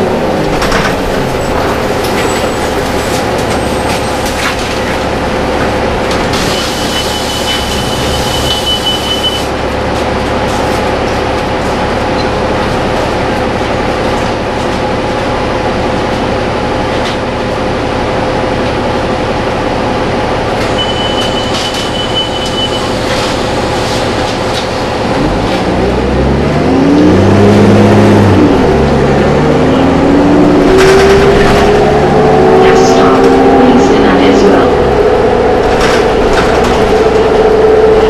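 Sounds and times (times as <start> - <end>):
bus diesel engine idling and revving: 0.0 - 38.0
steady high beep: 7.1 - 9.5, 20.8 - 22.9.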